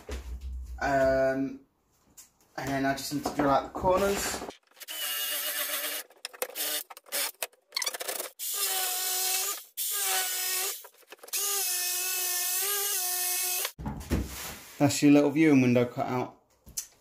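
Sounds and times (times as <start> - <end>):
drill boring through wood: 4.8 - 13.8
jigsaw cutting wood: 4.8 - 13.8.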